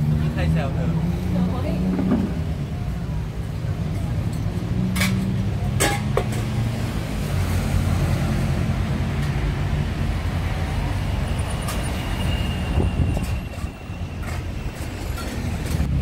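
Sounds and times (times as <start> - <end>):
street traffic: 0.0 - 16.0.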